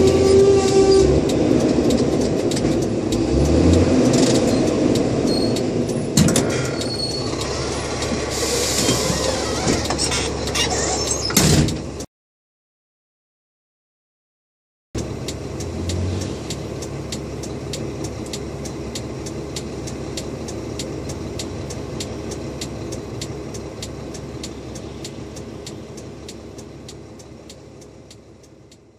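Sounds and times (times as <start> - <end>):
hazard flasher relay ticking: 0.0 - 8.1, 15.0 - 28.9
truck engine idling: 0.0 - 12.0, 15.0 - 28.9.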